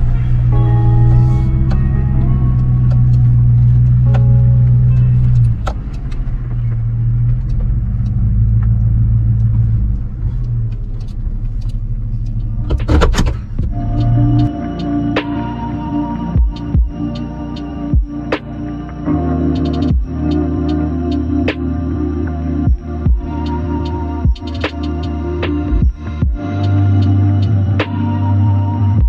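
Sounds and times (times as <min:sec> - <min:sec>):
truck engine and road drone: 0:00.0 - 0:29.0.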